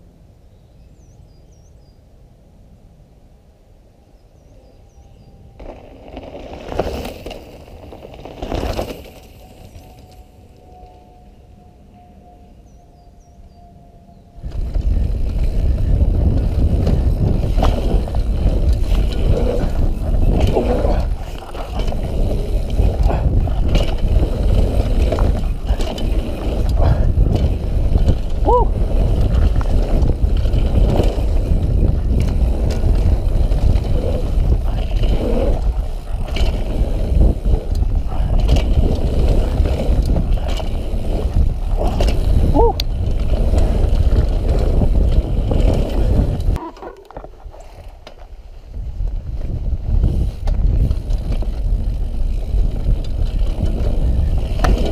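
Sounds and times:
bike tyre rumble: 0:05.6 - 0:11.0, 0:14.4 - 0:54.9
wind buffeting microphone: 0:09.4 - 0:54.9
bike clattering over bumps: 0:14.4 - 0:48.4, 0:49.2 - 0:54.9.

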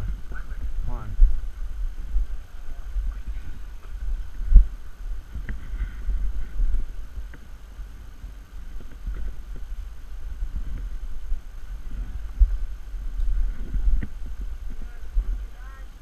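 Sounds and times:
wind rumble: 0:00.0 - 0:16.0.

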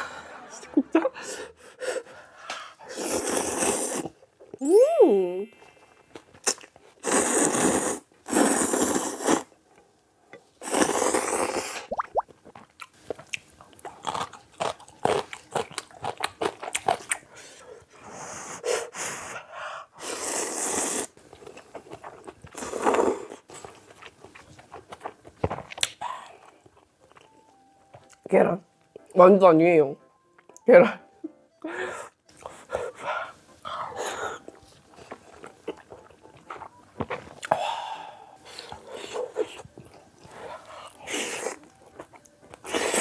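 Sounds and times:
noodles slurped: 0:02.8 - 0:04.2, 0:06.4 - 0:09.5, 0:10.6 - 0:12.1
wet chewing: 0:21.3 - 0:27.4, 0:33.7 - 0:37.6.

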